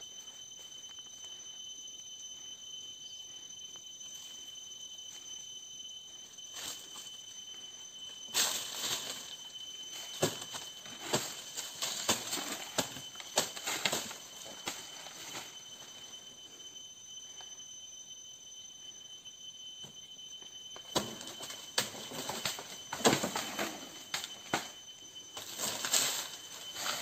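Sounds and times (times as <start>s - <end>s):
dry palm fronds rustling and crackling: 25.4s - 27.0s.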